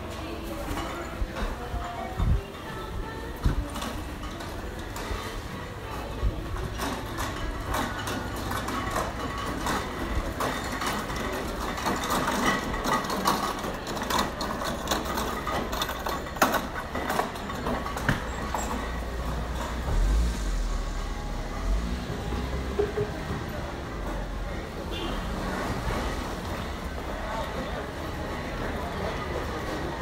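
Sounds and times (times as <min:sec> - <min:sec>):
market din: 0:00.0 - 0:30.0
small clicks and clatter: 0:06.7 - 0:18.9
low rumble: 0:19.0 - 0:24.3.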